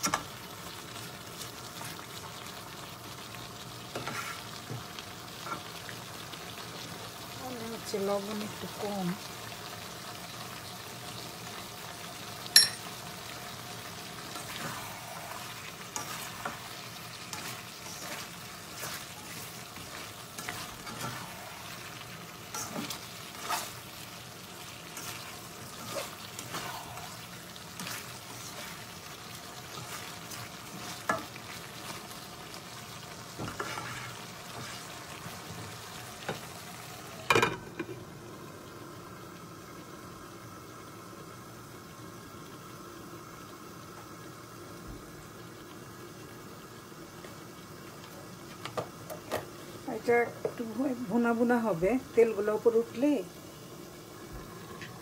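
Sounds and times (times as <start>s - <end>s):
curry sizzling in a pan: 0.0s - 55.0s
glass lid clanking on pan: 12.5s - 12.9s, 37.3s - 38.0s
spatula scraping and clinking pan: 33.4s - 34.7s.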